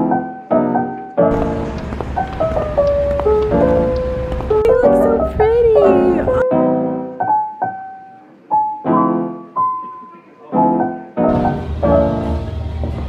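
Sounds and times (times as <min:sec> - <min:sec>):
piano notes and chords: 0:00.0 - 0:13.0
backing music with bass: 0:11.3 - 0:13.0.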